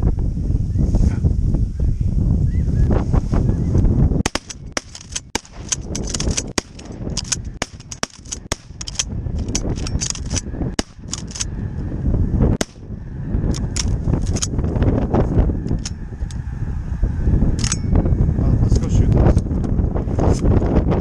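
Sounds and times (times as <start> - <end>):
shotgun blasts: 4.2 - 7.0, 7.6 - 8.9, 10.8 - 11.2, 12.6 - 12.9.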